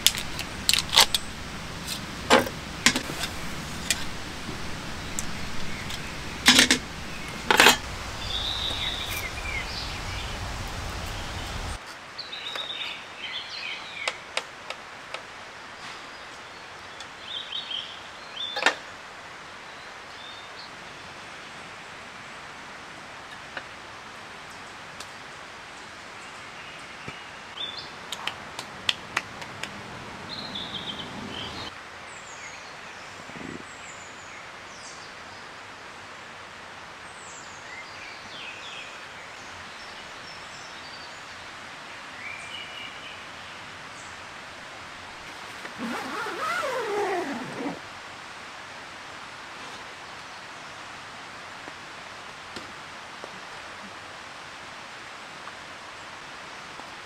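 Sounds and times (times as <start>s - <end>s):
steady forest hiss: 0.0s - 57.0s
bird chirps: 4.6s - 11.8s.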